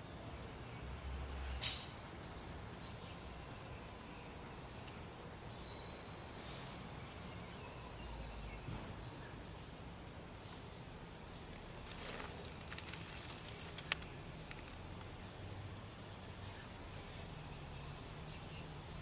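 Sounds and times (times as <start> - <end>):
faint outdoor background: 0.0 - 19.0
dry leaves crackling: 6.9 - 17.2.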